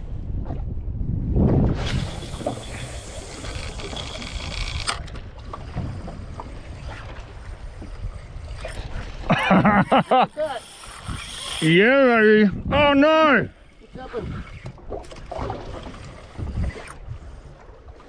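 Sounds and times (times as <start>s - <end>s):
water noise: 0.0s - 18.0s
wind on microphone: 0.0s - 18.0s
fishing line running off reel: 1.8s - 5.2s, 6.6s - 12.2s, 15.6s - 17.5s.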